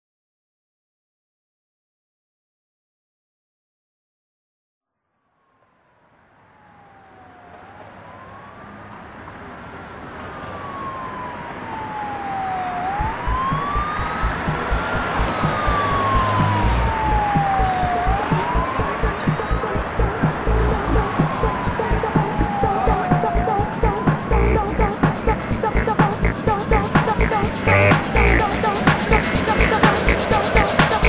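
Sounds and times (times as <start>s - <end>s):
wailing siren: 5.4s - 31.0s
thumping music beat: 12.9s - 31.0s.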